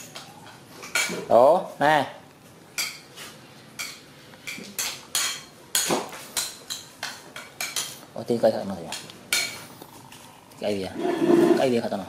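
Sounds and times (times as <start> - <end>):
cutlery clinking against dish: 0.0 - 1.3, 2.8 - 8.0.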